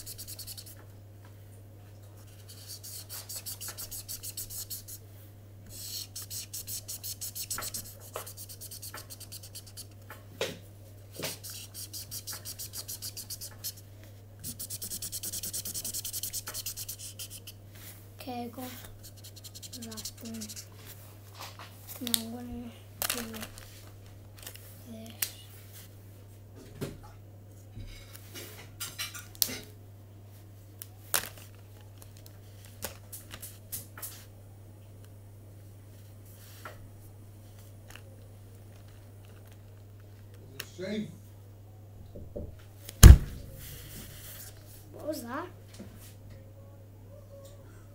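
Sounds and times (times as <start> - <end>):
marker scratching on paper: 0.0 - 0.8, 2.2 - 5.0, 5.7 - 10.0, 11.2 - 13.8, 14.4 - 17.6, 18.6 - 20.8
steady low hum: 0.0 - 28.7, 34.3 - 47.9
louder knocks: 42.2 - 43.6.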